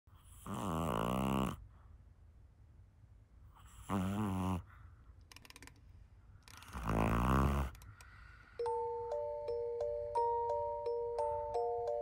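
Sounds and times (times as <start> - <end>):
dog snoring: 0.2 - 1.6, 3.6 - 4.8, 6.6 - 7.8.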